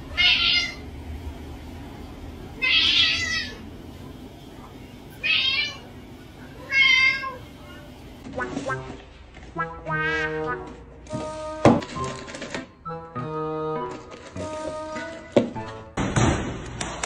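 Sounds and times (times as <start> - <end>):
cats meowing: 0.1 - 0.8, 2.6 - 3.6, 5.2 - 5.9, 6.6 - 7.8.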